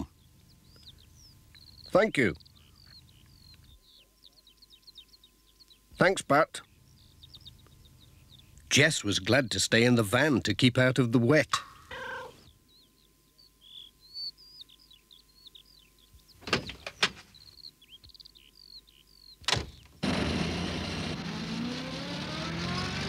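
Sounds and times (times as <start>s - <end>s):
birds chirping: 0.0s - 20.0s
van engine starting and revving: 20.0s - 23.0s.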